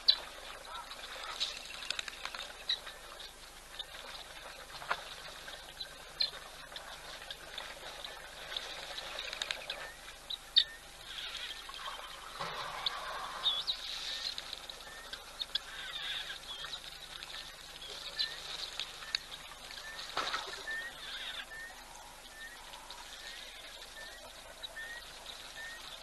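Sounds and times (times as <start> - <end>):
birds chirping and whistling: 9.7 - 16.8, 19.8 - 22.6.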